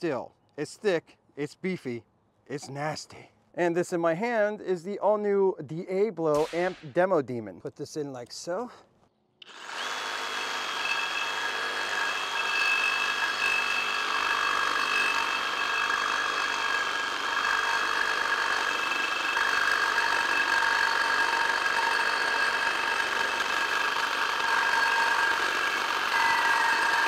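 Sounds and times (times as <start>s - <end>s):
reciprocating saw cutting steel pipe: 9.4s - 27.0s
high ringing tones: 24.4s - 27.0s.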